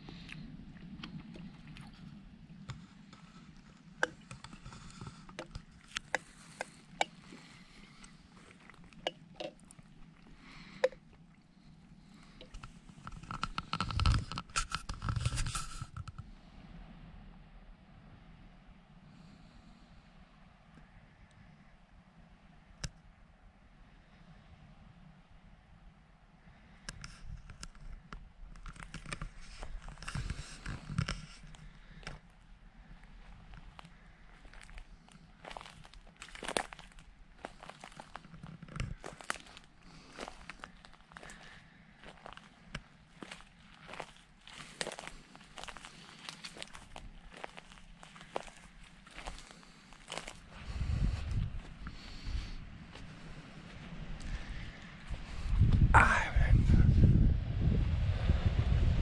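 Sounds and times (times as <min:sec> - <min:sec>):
faint rustle: 0:00.0 - 0:17.0, 0:26.4 - 0:57.1
clicks and knocks from handling gear: 0:26.9 - 0:32.2.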